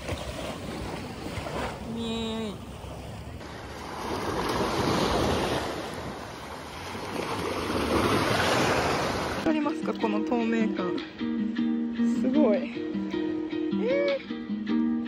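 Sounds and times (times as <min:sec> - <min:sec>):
small waves breaking on beach: 0:00.0 - 0:09.6.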